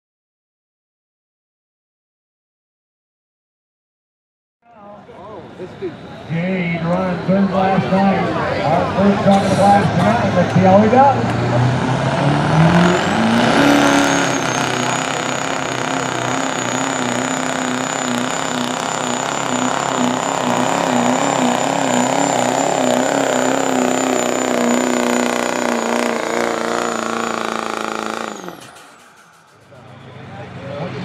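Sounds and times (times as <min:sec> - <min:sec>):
diesel engine at full throttle: 0:04.9 - 0:31.0
high turbo whistle: 0:12.4 - 0:30.6.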